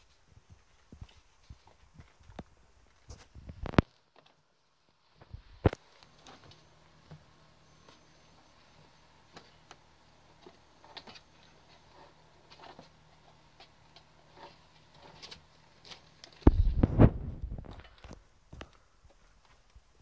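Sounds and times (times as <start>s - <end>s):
bumps and rustling: 10.4s - 19.7s.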